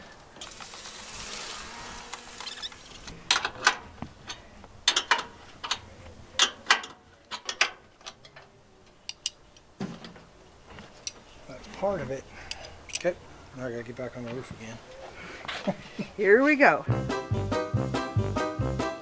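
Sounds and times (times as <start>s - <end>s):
soft hiss: 0.0s - 16.1s
metallic clicks and rattles: 3.3s - 8.5s.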